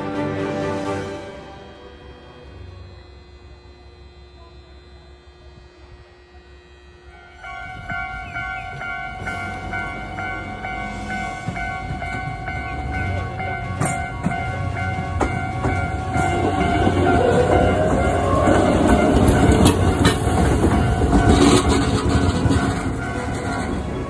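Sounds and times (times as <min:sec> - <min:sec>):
level crossing warning bell: 0:00.8 - 0:05.2, 0:06.6 - 0:24.0
train wheels clacking on rails: 0:07.6 - 0:24.0.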